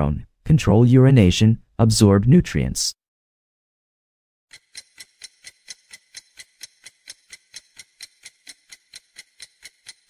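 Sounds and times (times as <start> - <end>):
clock-like ticking: 4.5 - 10.0.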